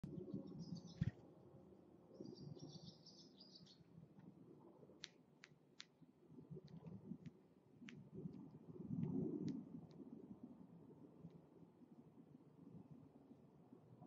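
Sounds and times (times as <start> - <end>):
swallow twittering: 0.3 - 1.1.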